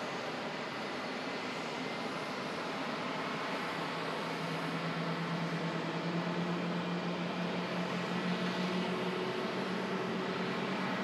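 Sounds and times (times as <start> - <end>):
jet engines running at low power: 0.0 - 11.0.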